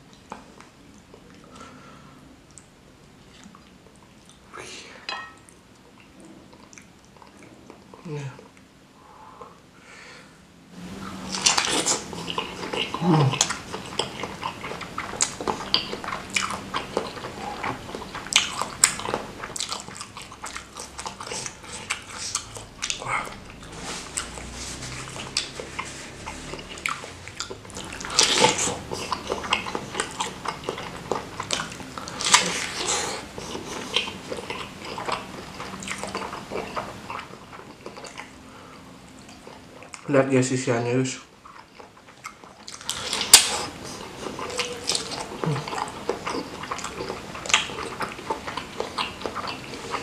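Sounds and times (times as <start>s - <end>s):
person chewing food: 10.8s - 40.1s, 41.3s - 50.0s
low falling vocal sound: 12.9s - 13.5s
wet mouth clicks: 42.0s - 50.0s.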